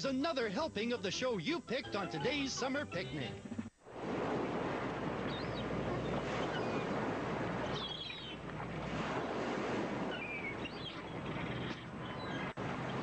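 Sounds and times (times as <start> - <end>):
ocean surf washing: 3.8 - 13.0.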